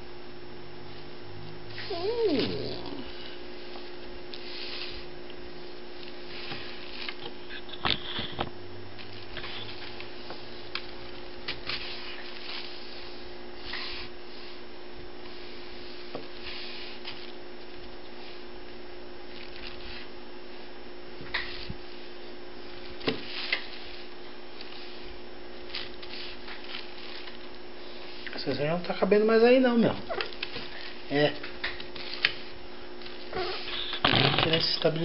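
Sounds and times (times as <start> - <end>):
low electrical hum: 0.0 - 35.0
paper rustling and scratching: 19.3 - 20.1, 22.8 - 28.3, 30.2 - 33.8.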